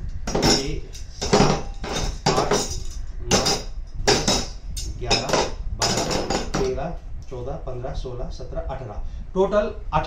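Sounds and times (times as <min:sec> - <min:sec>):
metal stakes clinking: 0:00.3 - 0:06.8.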